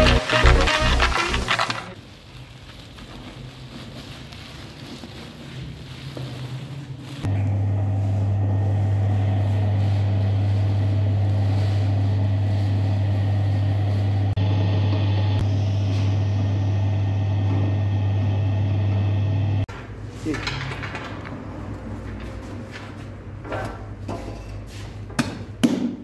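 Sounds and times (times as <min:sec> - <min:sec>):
dough mixer motor humming: 0:07.4 - 0:19.6.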